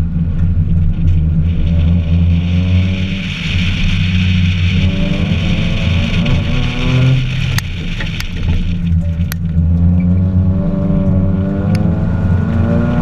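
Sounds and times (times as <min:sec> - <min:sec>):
steady hiss: 0:01.3 - 0:09.4
car engine revving hard: 0:01.4 - 0:08.8, 0:09.6 - 0:13.0.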